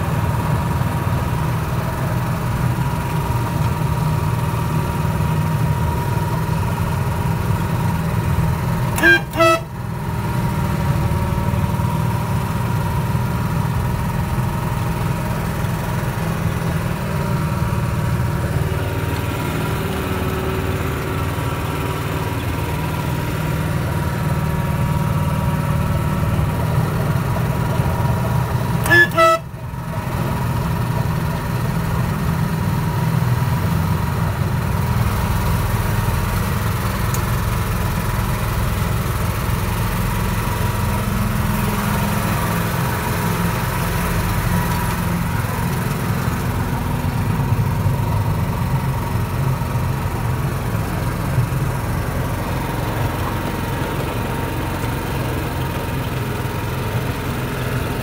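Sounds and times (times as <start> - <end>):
locomotive horn toot: 8.9 - 10.0, 28.7 - 29.8.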